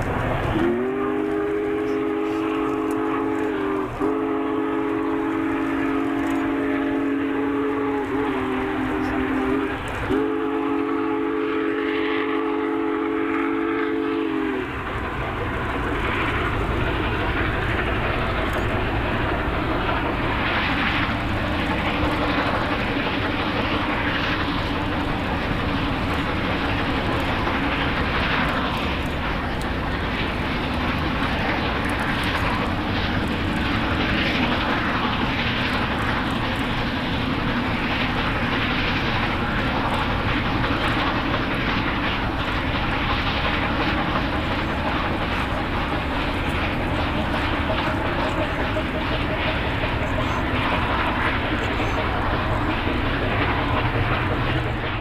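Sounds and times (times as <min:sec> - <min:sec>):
steam train rumbling past: 0:00.0 - 0:55.0
steam locomotive chime whistle: 0:00.6 - 0:14.9.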